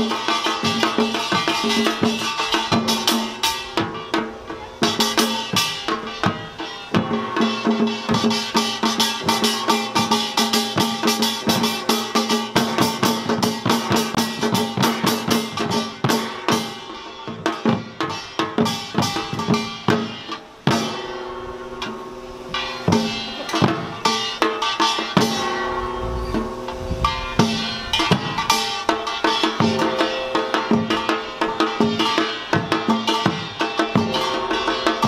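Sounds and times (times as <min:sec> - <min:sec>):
hourglass and barrel drums: 0:00.0 - 0:35.0
ringing gong: 0:20.8 - 0:32.4.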